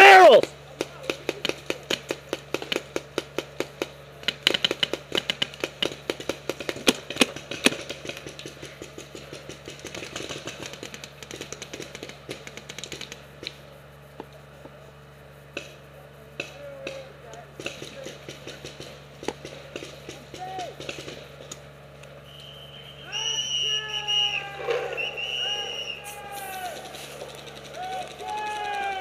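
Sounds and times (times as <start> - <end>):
paintball markers firing: 0.3 - 13.6, 15.5 - 15.8, 16.4 - 22.4.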